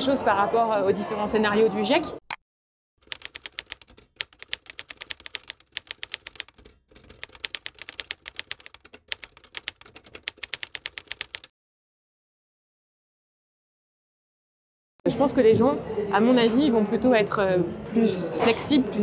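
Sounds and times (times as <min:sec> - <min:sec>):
keyboard typing clicks: 0:03.0 - 0:11.5.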